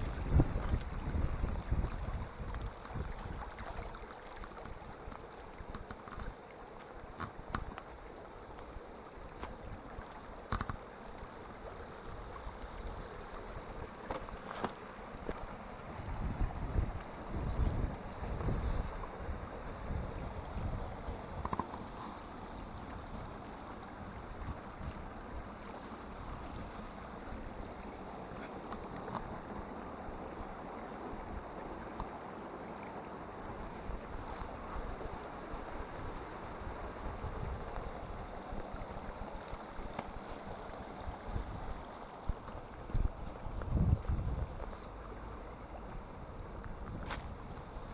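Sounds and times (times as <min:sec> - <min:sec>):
stream rushing over rocks: 0:00.0 - 0:47.9.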